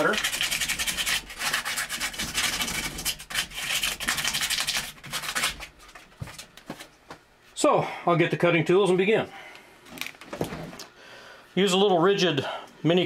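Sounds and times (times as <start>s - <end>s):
sandpaper rubbing pipe: 0.0s - 5.7s.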